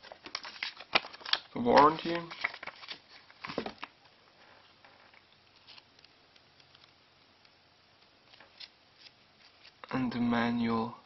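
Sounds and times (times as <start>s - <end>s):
paper rustling and tapping: 0.0s - 3.9s.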